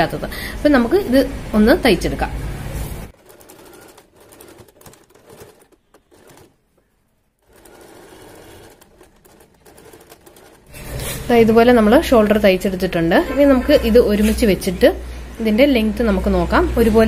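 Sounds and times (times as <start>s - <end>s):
sewing machine stitching: 3.1s - 6.6s, 7.4s - 11.4s.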